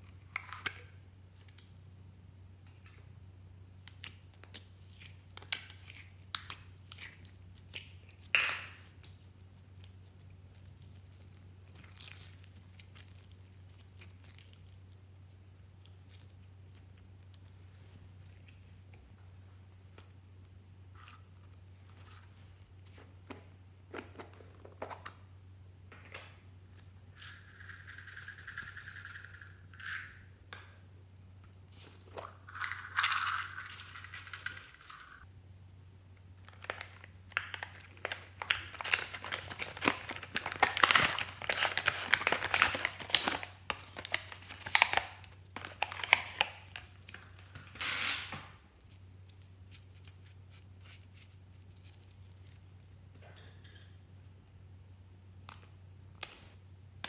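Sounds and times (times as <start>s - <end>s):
plastic packaging crinkling: 36.4s - 53.0s.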